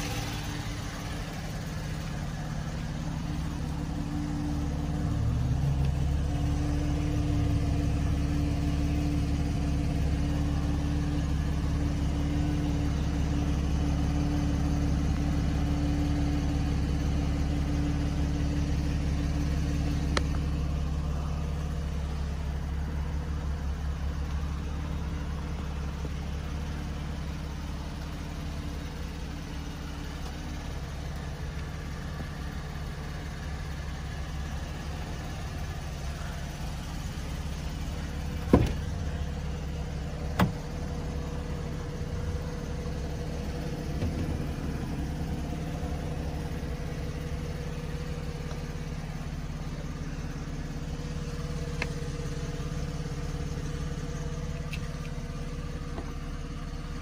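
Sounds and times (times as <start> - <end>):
car engine idling: 0.0 - 57.0
car door latch clicks: 38.5 - 38.9, 40.3 - 40.6.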